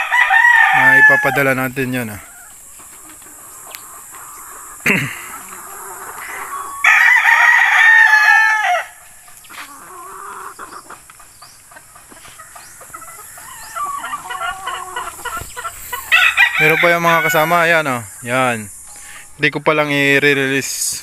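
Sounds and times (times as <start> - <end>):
rooster crowing: 0.0 - 1.5, 5.7 - 9.1, 12.6 - 18.0
soft clucking: 9.2 - 16.1.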